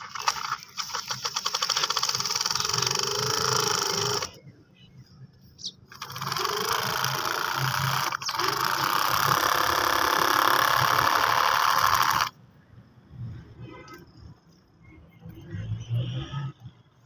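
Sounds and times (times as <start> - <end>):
small electric motor whirring: 0.0 - 4.4, 5.9 - 12.3.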